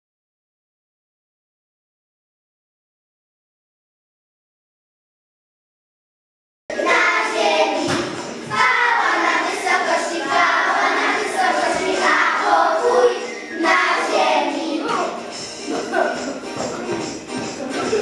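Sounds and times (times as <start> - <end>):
children singing together: 6.7 - 17.0.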